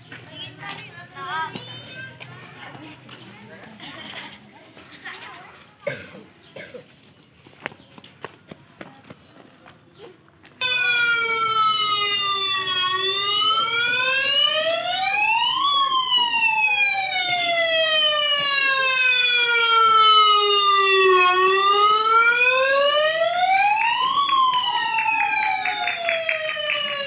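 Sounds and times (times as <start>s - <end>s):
siren wailing: 10.6s - 27.0s.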